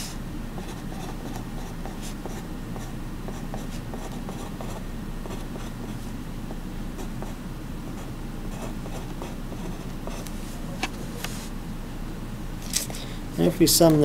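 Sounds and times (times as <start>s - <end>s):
steady low hum: 0.0s - 14.0s
pencil scratching on paper: 0.6s - 6.0s, 8.0s - 10.3s.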